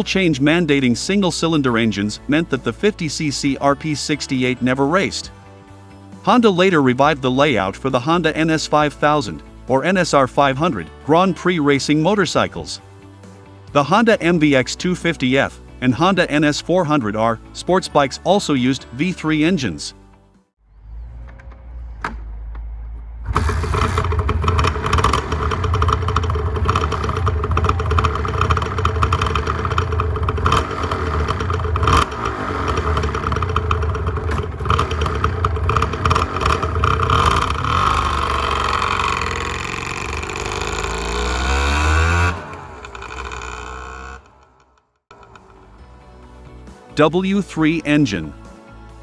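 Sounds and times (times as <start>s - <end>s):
motorcycle throttle blips: 21.0s - 46.0s
motorcycle engine kick-started: 21.0s - 46.4s.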